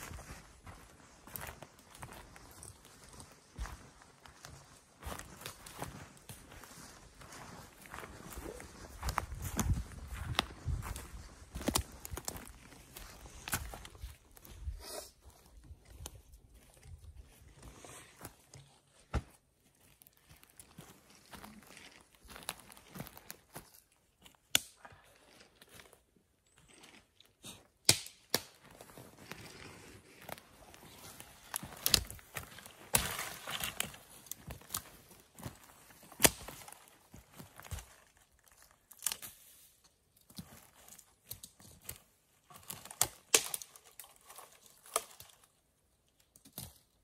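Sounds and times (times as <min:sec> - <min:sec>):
twigs crackling: 0:00.0 - 0:14.5, 0:27.9 - 0:47.0
footsteps on forest floor: 0:00.0 - 0:26.0, 0:28.5 - 0:45.4
sharp twig crack: 0:27.8 - 0:28.6, 0:43.3 - 0:43.7.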